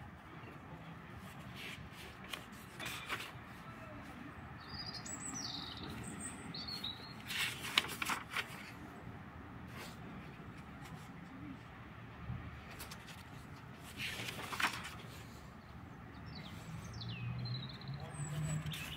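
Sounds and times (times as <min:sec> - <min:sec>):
notebook pages turning: 0:01.3 - 0:03.4, 0:07.2 - 0:08.8, 0:12.6 - 0:15.2
bird chirping: 0:04.6 - 0:07.2, 0:16.1 - 0:18.9.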